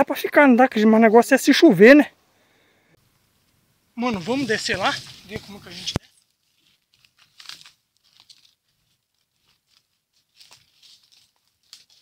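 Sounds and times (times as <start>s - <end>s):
rustling: 3.3s - 12.0s
footsteps crunching: 4.0s - 12.0s.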